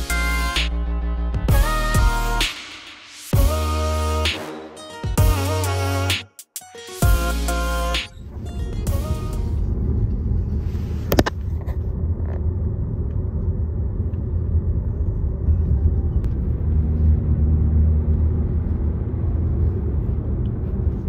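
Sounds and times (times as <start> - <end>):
car road noise rumble: 8.1 - 21.0.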